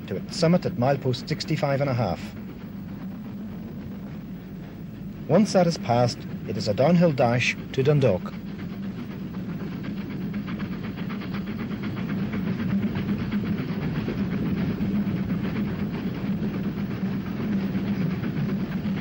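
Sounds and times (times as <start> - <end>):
steam locomotive running fast: 0.0 - 19.0.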